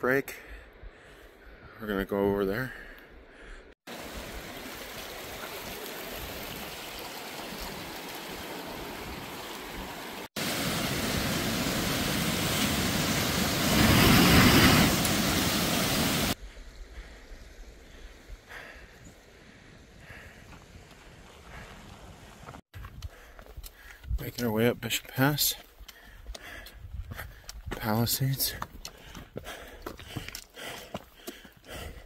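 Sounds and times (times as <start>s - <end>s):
mountain stream rushing: 3.9s - 16.4s.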